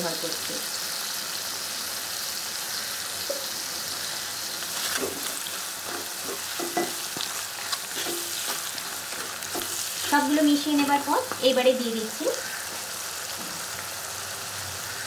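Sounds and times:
vegetables sizzling in oil: 0.0 - 15.0
wooden spatula scraping a pan: 4.6 - 11.4.

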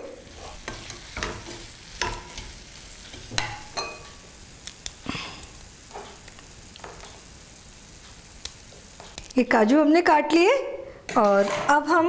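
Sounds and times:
wooden spatula scraping a pan: 0.1 - 3.7, 11.1 - 12.0.

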